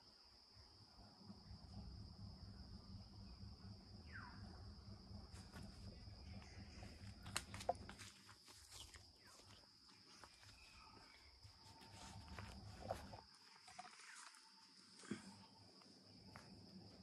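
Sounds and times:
high-pitched insect chorus: 0:00.0 - 0:17.0
low rumble: 0:00.9 - 0:07.8.

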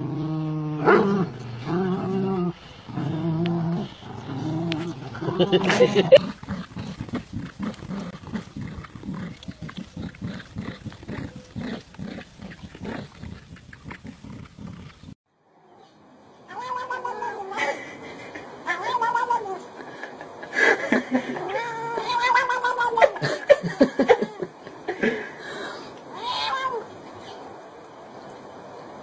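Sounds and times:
cat yowling: 0:16.5 - 0:17.6, 0:18.6 - 0:19.6, 0:21.4 - 0:23.2, 0:26.2 - 0:26.9.

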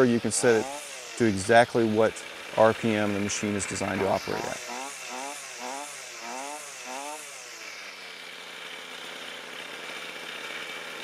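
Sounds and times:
string trimmer engine idling: 0:00.0 - 0:11.0
string trimmer engine revving: 0:00.0 - 0:11.0.

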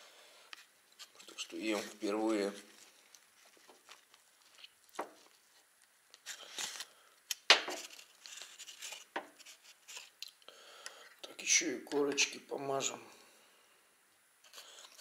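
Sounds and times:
baking paper rustling: 0:01.0 - 0:06.9, 0:07.5 - 0:10.2.

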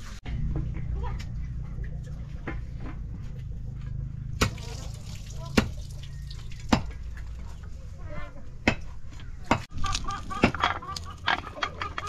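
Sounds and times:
hens clucking: 0:08.0 - 0:12.0.

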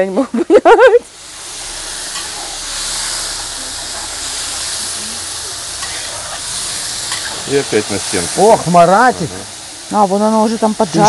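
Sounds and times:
beef sizzling in hot fat: 0:00.4 - 0:11.0.

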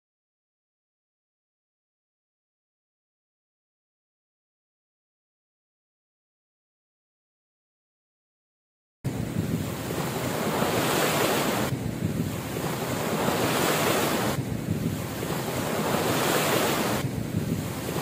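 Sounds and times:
ocean waves washing up beach: 0:09.1 - 0:18.0.

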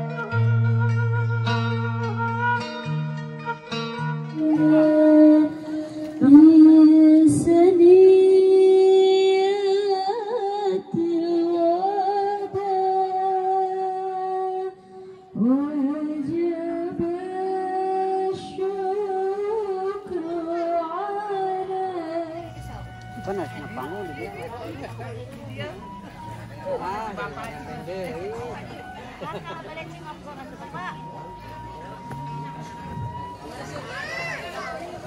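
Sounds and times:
woman singing: 0:03.4 - 0:23.2.

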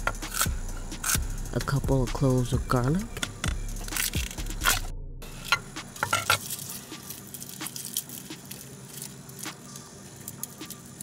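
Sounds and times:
knife crushing garlic on wood: 0:00.0 - 0:01.2
garlic skins crackling: 0:03.8 - 0:11.0.

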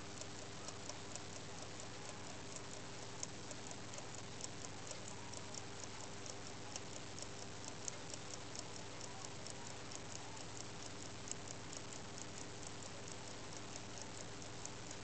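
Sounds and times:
pocket watch ticking: 0:00.0 - 0:15.0.

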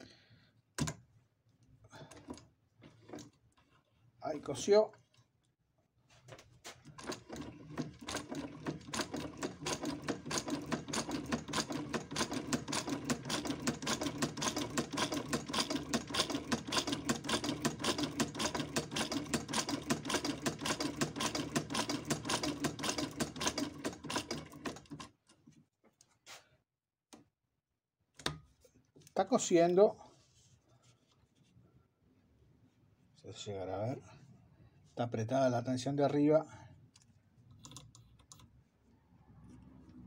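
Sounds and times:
sewing machine clatter: 0:02.1 - 0:03.7, 0:06.8 - 0:25.4.

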